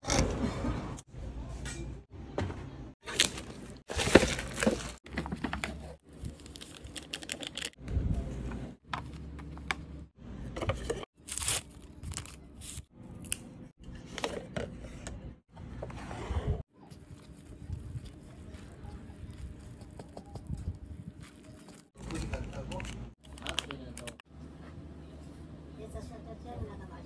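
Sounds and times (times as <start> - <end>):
packaging crinkling and tearing: 3.0 - 5.3, 6.0 - 7.8, 11.2 - 13.4.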